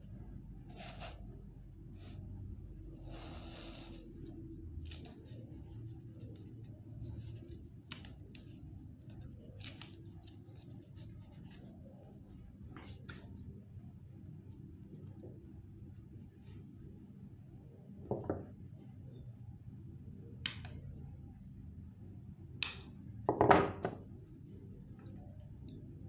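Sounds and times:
artificial flower stems rustling: 0.0 - 13.6.

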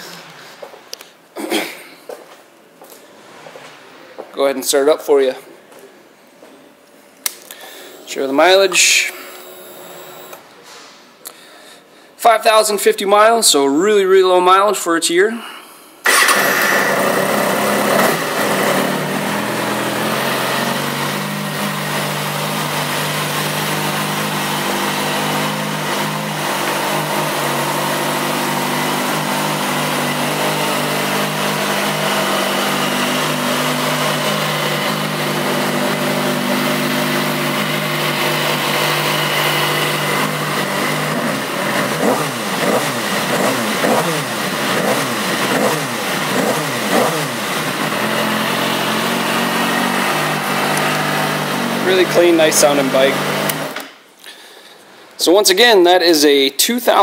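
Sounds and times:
motorcycle engine revving: 7.7 - 10.4, 16.1 - 53.8.

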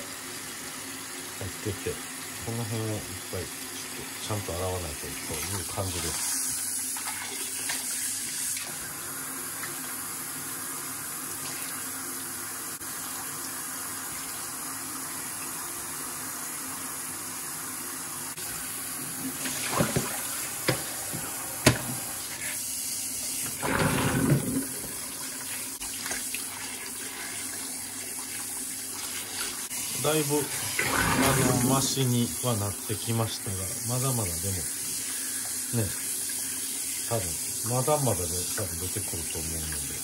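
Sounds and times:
tap water running into sink: 1.4 - 15.7, 18.4 - 40.0
water splashing: 19.2 - 21.0.

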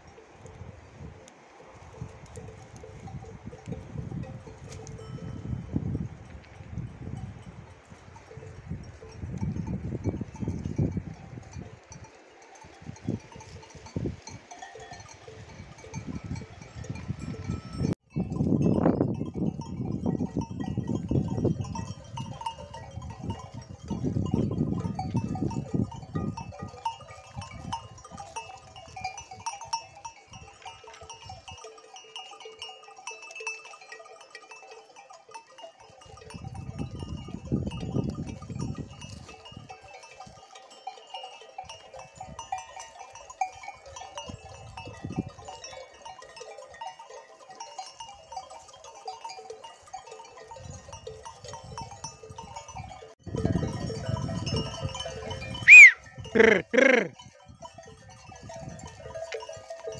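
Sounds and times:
sheep and goats bleating: 55.7 - 57.2.

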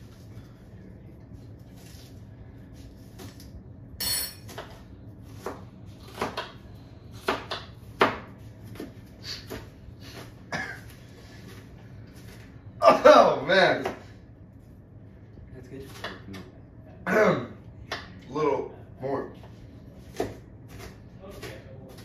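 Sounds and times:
utensils and dishes clinking: 4.0 - 4.7.

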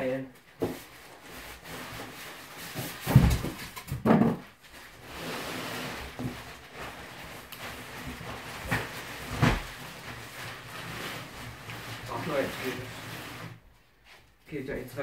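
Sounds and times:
cardboard scraping and rustling: 0.6 - 4.0, 4.7 - 13.6.

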